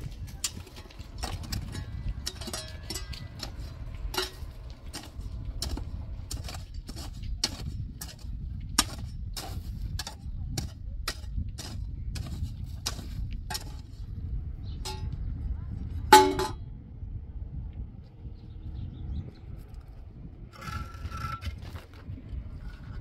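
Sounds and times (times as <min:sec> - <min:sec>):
metal tool striking stony ground: 0:00.0 - 0:14.1, 0:14.8 - 0:15.2, 0:16.1 - 0:16.6
low rumble: 0:00.0 - 0:23.0.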